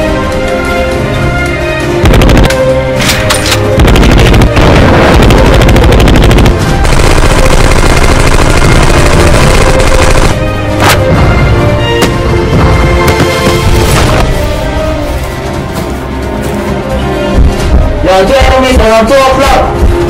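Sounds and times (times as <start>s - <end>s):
background music: 0.0s - 20.0s
automatic gunfire: 3.8s - 10.4s.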